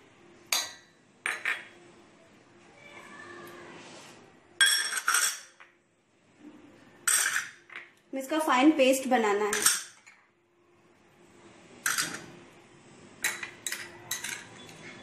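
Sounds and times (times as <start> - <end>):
glass bowls clinking on steel jar: 4.6 - 5.6, 7.0 - 7.9, 9.5 - 10.2, 13.2 - 15.0.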